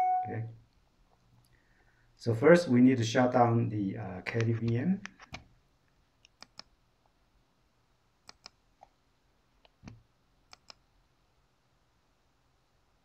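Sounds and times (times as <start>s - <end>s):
computer mouse clicks: 6.2s - 6.7s, 8.2s - 9.0s, 9.6s - 10.8s.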